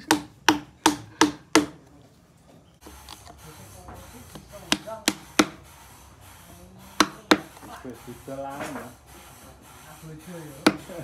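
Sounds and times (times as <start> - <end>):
hammer striking chisel into wood: 0.0 - 1.9, 4.3 - 5.6, 6.9 - 7.7, 10.6 - 10.9.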